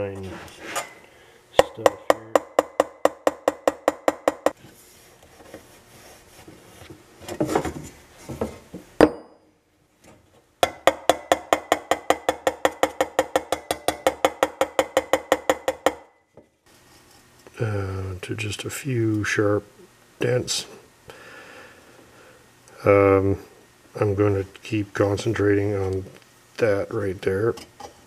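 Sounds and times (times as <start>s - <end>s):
hammer tapping on metal: 1.6s - 4.6s, 10.6s - 16.1s.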